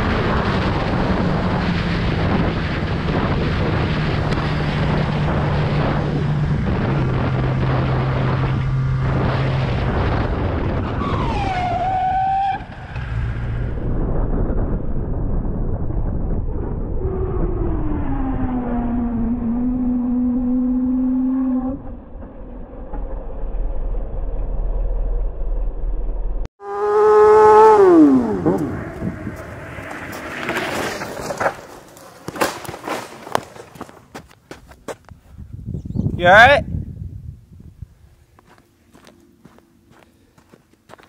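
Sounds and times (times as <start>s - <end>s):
wind rush on camera: 0.0s - 11.7s, 12.6s - 19.4s, 27.7s - 32.0s, 33.3s - 39.6s
low tone sliding down: 0.0s - 31.0s
motorcycle engine note: 26.6s - 30.6s.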